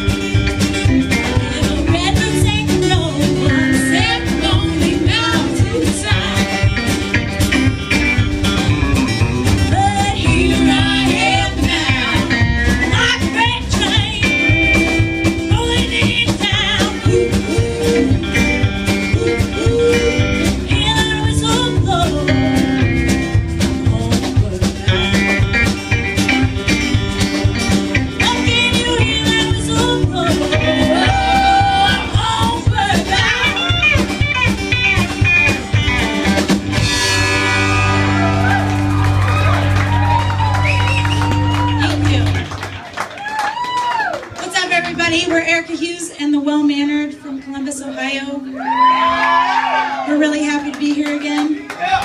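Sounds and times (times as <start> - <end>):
strummed acoustic guitar: 0.0 - 39.0
upright bass: 0.0 - 43.4, 44.4 - 52.0
electric guitar: 0.0 - 46.0
drums: 0.0 - 52.0
woman singing: 1.2 - 7.0, 9.7 - 25.6, 28.2 - 34.1.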